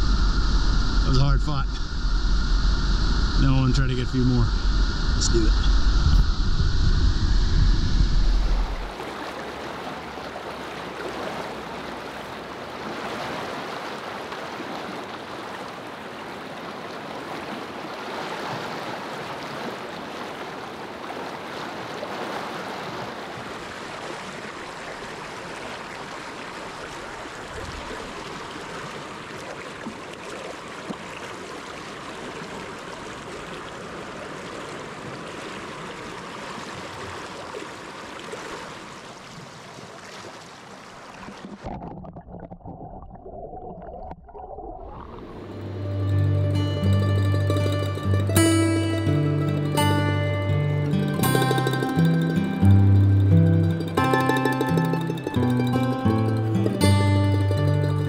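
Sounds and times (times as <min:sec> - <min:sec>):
river water rushing: 0:08.3 - 0:41.4, 0:45.1 - 0:58.0.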